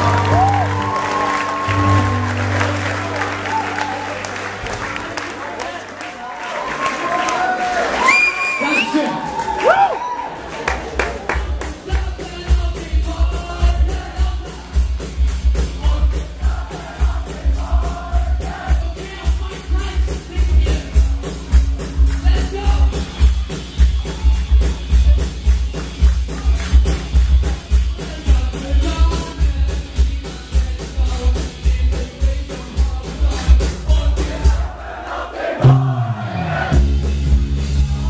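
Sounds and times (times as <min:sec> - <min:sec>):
live rock band playing: 0:00.0 - 0:06.9, 0:10.4 - 0:34.7, 0:35.6 - 0:38.0
person singing lead vocals: 0:11.3 - 0:14.9, 0:28.0 - 0:36.8
heavy kick drum beat: 0:11.4 - 0:34.7.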